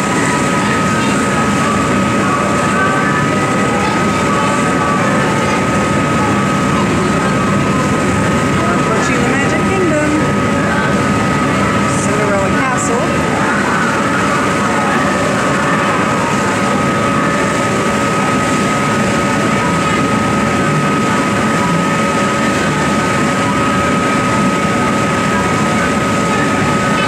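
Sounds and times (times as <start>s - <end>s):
ferry engines whining: 0.0s - 27.0s
water rushing: 0.0s - 27.0s.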